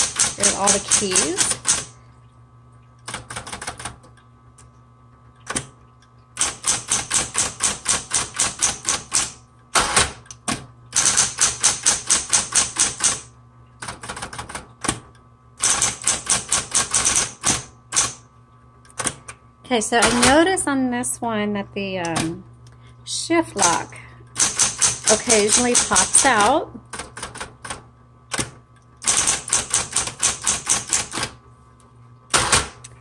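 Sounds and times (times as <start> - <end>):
typewriter key strikes: 0.0 - 1.9, 11.0 - 13.3, 15.6 - 18.2, 24.4 - 26.5, 28.4 - 31.3
typewriter motor hum: 0.0 - 2.1, 3.0 - 4.2, 6.4 - 18.2, 23.6 - 31.4, 32.3 - 33.0.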